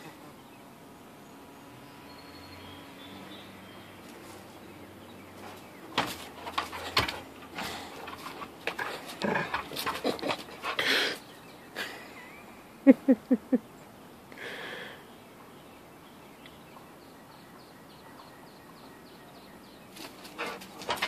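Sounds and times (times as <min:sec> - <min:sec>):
dog huffing: 0:06.3 - 0:11.3, 0:20.3 - 0:21.0.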